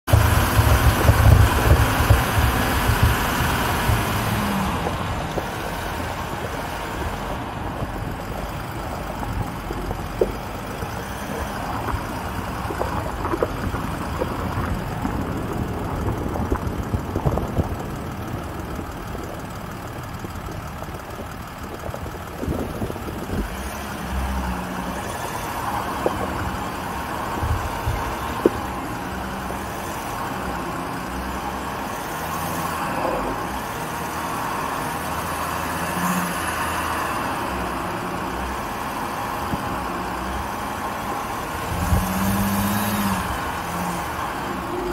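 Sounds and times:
engine running at low revs: 0:00.1 - 0:44.9
knocks and clicks from stones: 0:09.7 - 0:15.6.

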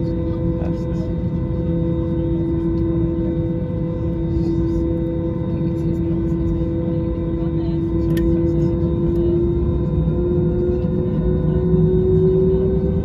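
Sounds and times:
aircraft cabin hum: 0:00.0 - 0:13.0.

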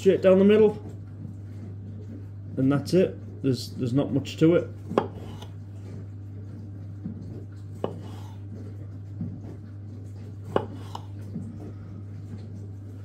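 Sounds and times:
knife tapping on chopping board: 0:05.0 - 0:05.5.

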